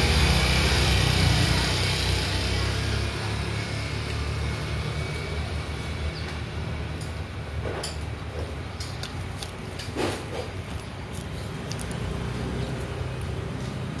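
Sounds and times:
low engine rumble: 0.0 - 14.0
greens tearing and crunching: 8.8 - 14.0.

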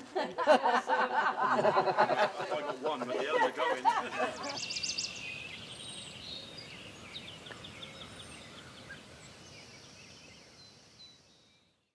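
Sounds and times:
steady background hiss: 0.0 - 11.6
small birds chirping: 2.4 - 11.9.

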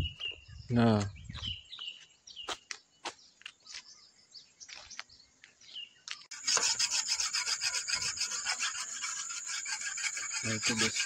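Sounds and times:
bird chirps: 0.0 - 6.3
fast rasping scratch: 6.3 - 11.0.

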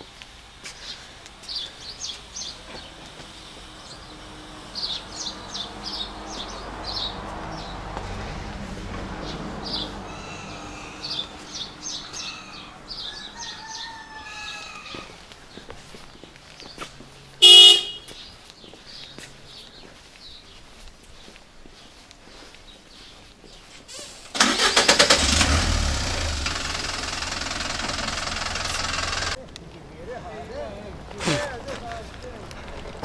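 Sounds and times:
small birds chirping: 0.0 - 8.0, 9.2 - 24.2
vehicle passing: 0.8 - 15.6, 16.8 - 18.1, 24.0 - 33.0
vehicle horn toot: 17.4 - 18.1.

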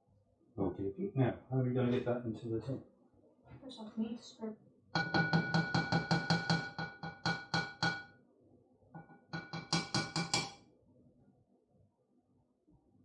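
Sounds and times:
utensil knocking on ceramic bowl: 5.0 - 8.1, 9.0 - 10.6.

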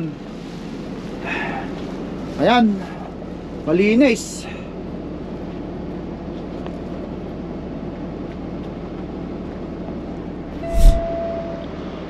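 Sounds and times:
brief steady tone: 10.6 - 11.8.

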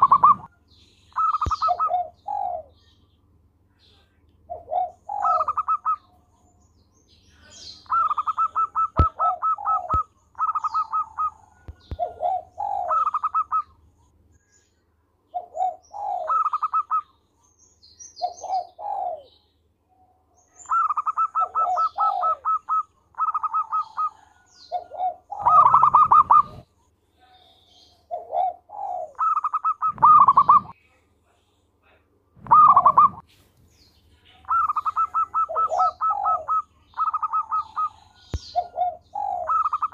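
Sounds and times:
dove cooing song: 0.0 - 3.0, 4.5 - 6.5, 7.5 - 13.8, 15.3 - 17.1, 18.0 - 19.5, 20.4 - 26.7, 27.3 - 30.8, 32.4 - 33.2, 34.3 - 39.9
small birds chirping: 0.0 - 39.9.

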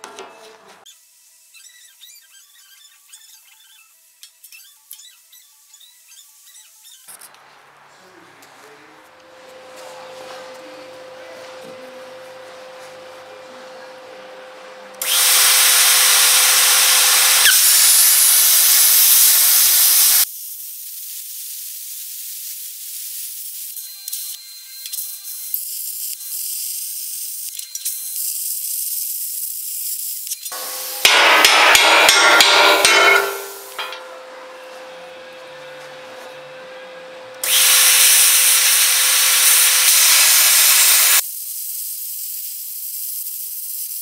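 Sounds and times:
plasma cutter hissing: 15.0 - 23.7, 28.3 - 34.0, 37.4 - 44.0.

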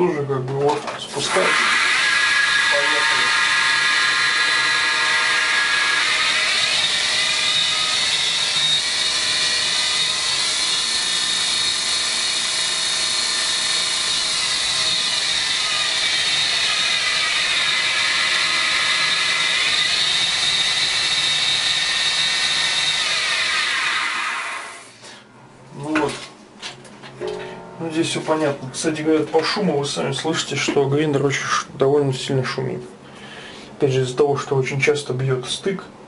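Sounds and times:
belt grinder whining: 1.1 - 25.0.

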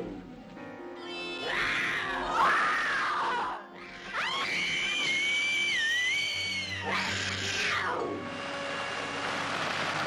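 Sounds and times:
long shrill scream: 1.4 - 8.2.

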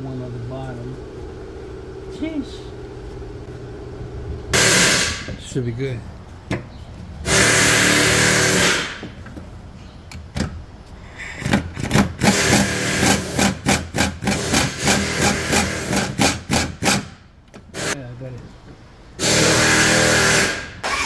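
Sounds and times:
hissing exhaust air: 4.5 - 5.4, 7.2 - 9.2, 10.9 - 13.4
air ratchet running: 4.6 - 5.3, 7.3 - 9.1, 11.3 - 18.0, 19.2 - 21.0.

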